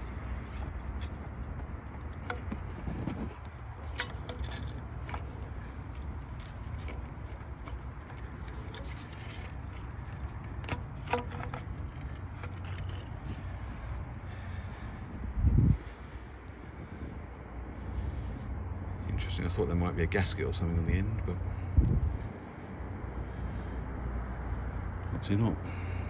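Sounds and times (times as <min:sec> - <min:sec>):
pipe scraping: 0:00.0 - 0:14.0
low background rumble: 0:00.0 - 0:26.0.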